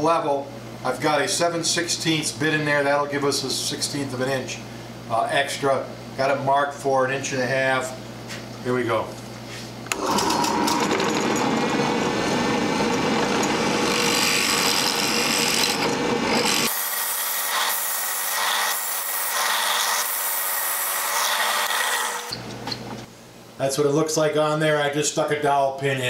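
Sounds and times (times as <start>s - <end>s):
drill bit cutting wood: 9.9s - 22.4s
drill press motor running: 9.9s - 22.5s.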